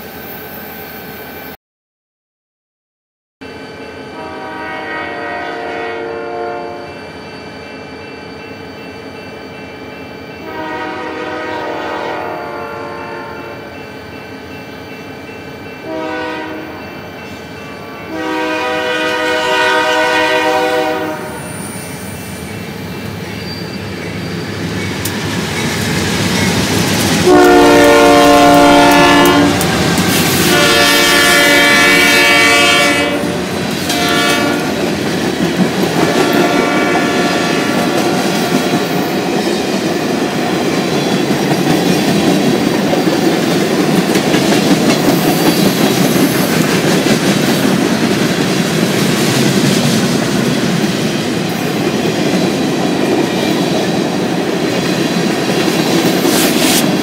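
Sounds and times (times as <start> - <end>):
train rumbling: 3.4 - 57.0
locomotive horn blasts: 4.1 - 7.0, 10.4 - 13.7, 15.8 - 16.8, 17.7 - 21.5, 27.2 - 34.8, 36.0 - 37.9.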